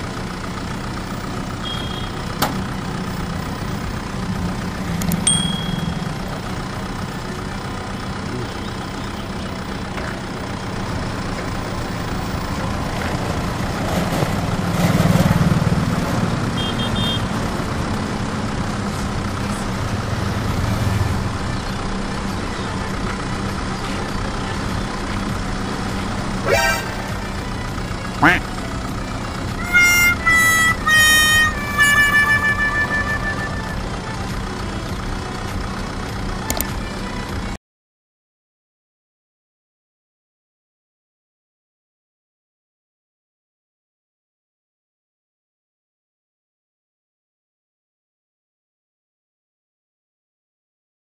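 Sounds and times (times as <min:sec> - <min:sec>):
road noise: 0:00.0 - 0:37.6
vehicle motor hum: 0:00.0 - 0:37.6.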